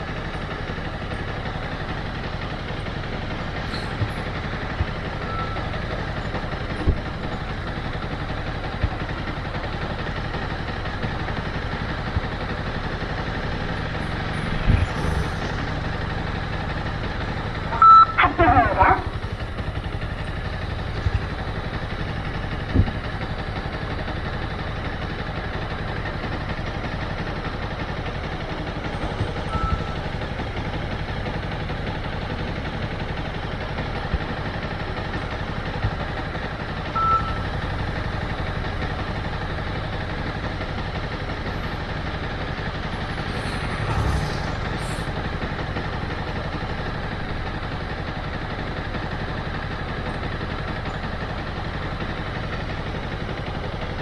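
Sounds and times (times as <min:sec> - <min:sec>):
motorcycle engine idling: 0:00.0 - 0:54.0
short high beeps: 0:17.8 - 0:18.3.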